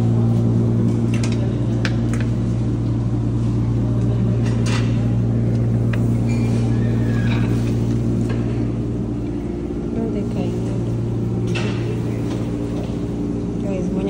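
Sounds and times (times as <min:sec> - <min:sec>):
low machine hum: 0:00.0 - 0:14.0.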